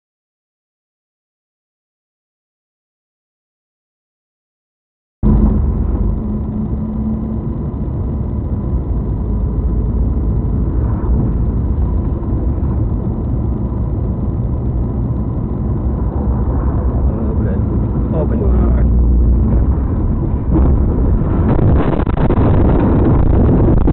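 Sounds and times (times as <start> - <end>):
faint high whine: 5.2 - 11.8
car engine and road noise: 5.2 - 23.9.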